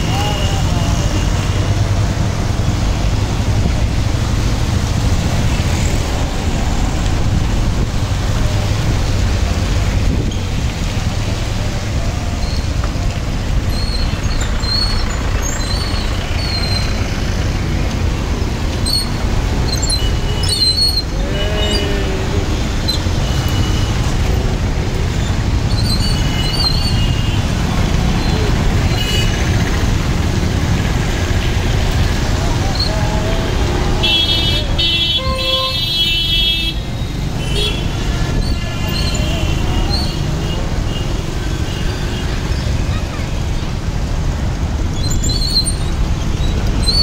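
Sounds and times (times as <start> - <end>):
tyres on wet road: 0.0 - 47.0
wind noise: 3.4 - 11.2.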